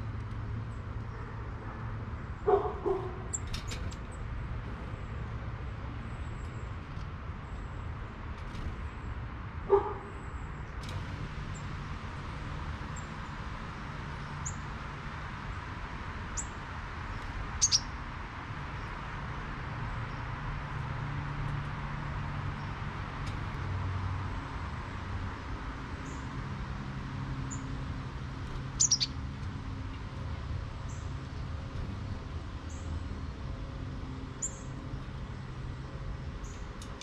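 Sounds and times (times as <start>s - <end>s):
low outdoor hum: 0.0s - 37.0s
dog barking: 2.4s - 3.3s, 9.7s - 10.1s
high bird chirps: 17.6s - 17.9s, 28.6s - 29.2s.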